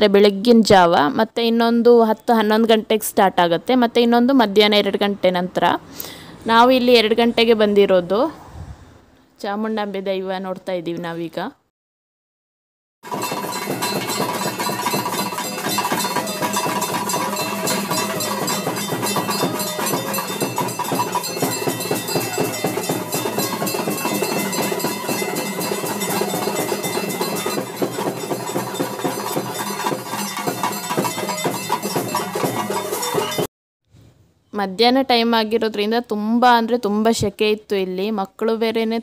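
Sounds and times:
drums beaten with sticks: 13.0 - 33.5.

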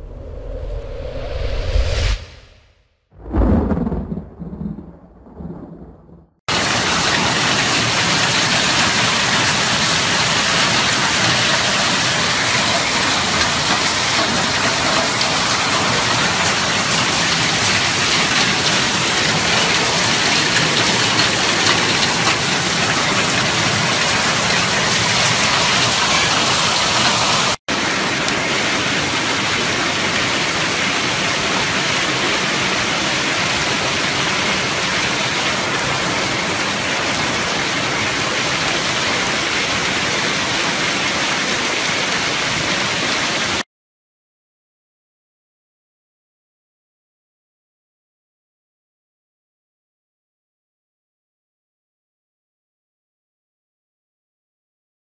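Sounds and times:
hail and rain pelting down: 6.5 - 43.6.

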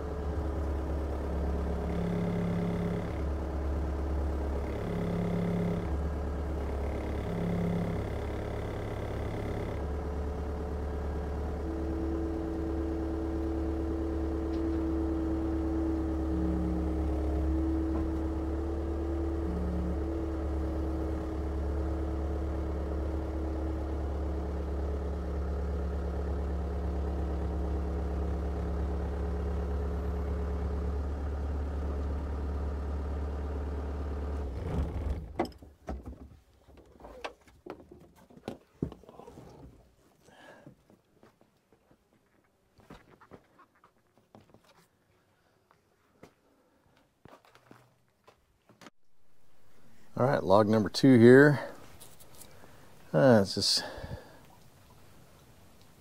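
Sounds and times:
engine running steadily: 0.0 - 35.7, 49.0 - 56.0.

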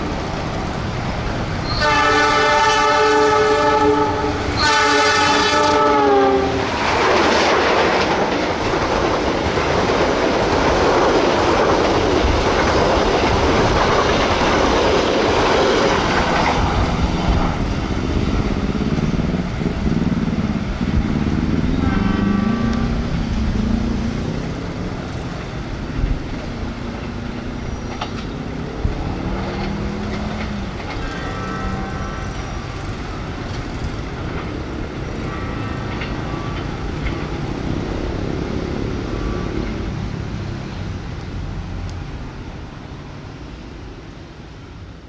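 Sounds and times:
train coaches rumbling over rails: 0.0 - 45.0.

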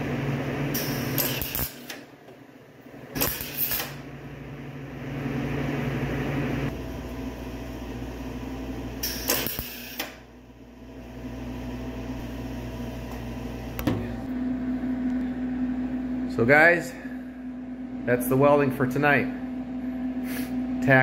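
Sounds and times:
steady mechanical hum: 0.0 - 21.0
welding arc crackling: 0.6 - 2.1, 3.1 - 4.1, 9.0 - 10.2.

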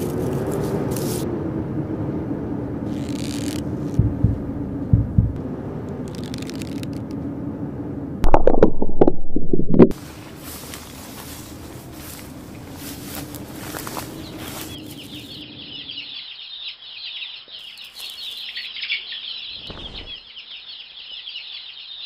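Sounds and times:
steady low drone: 1.2 - 14.4
deep thumps: 4.0 - 5.4
crackling clicks: 6.0 - 7.2
harsh downward-sliding burst: 8.2 - 10.0.

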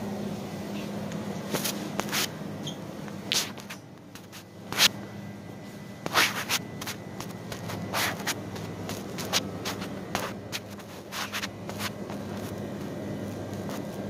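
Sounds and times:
steady low hum: 0.0 - 14.0
fabric rubbing against microphone: 1.5 - 2.4, 3.3 - 5.0, 6.0 - 14.0.

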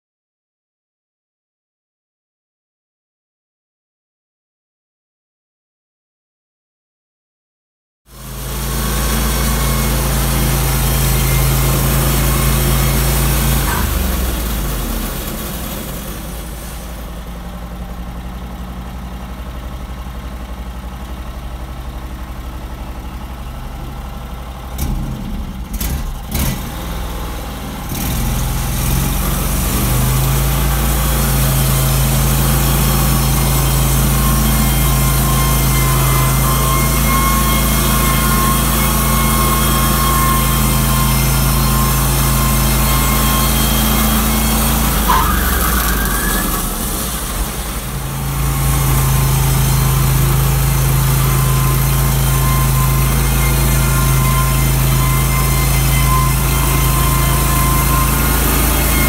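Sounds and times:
band saw blade whine: 8.1 - 18.2, 24.8 - 59.0
sawmill engine running: 8.1 - 59.0.

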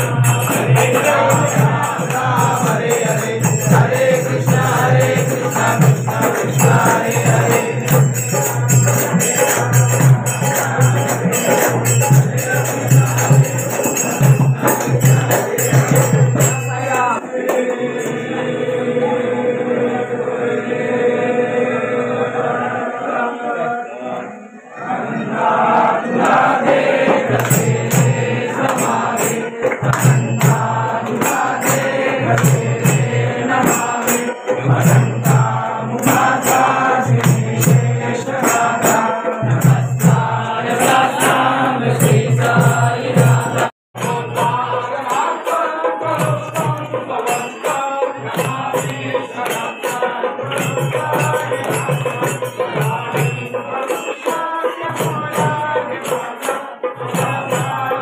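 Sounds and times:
jingling hand cymbals: 0.0 - 17.3, 26.3 - 58.0
group of voices chanting: 16.8 - 43.8.

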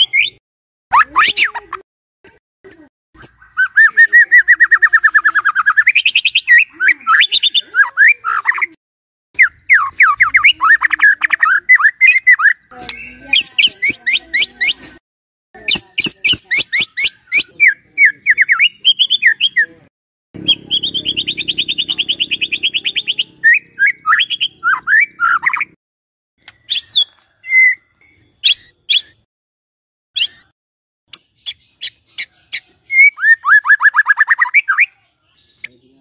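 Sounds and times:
fast rattling bird trill: 15.7 - 17.5, 20.4 - 25.7
bird singing sweeping notes: 20.4 - 25.8, 26.5 - 29.3, 30.2 - 30.5
loud bird calls: 20.4 - 25.8.

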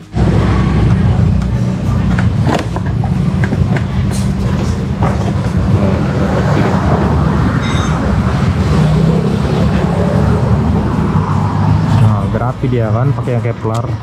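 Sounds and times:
low mechanical rumble: 0.0 - 11.8
high squeak: 7.6 - 8.1.

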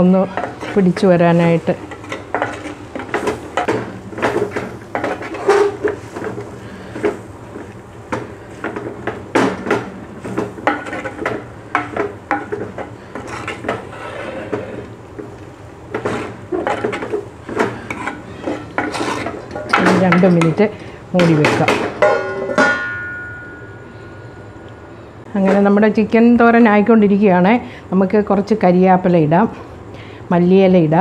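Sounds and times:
spatula scraping clay pot: 12.3 - 14.9, 15.9 - 19.6.

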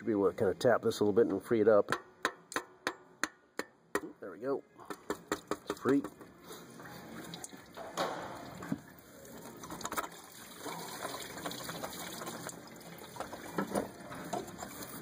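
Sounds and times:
liquid trickling: 6.6 - 15.0.

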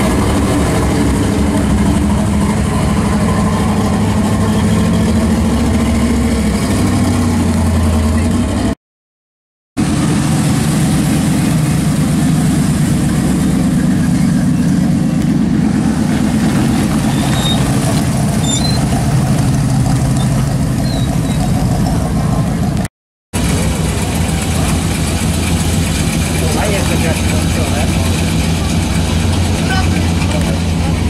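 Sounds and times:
car engine idling: 9.8 - 31.0.

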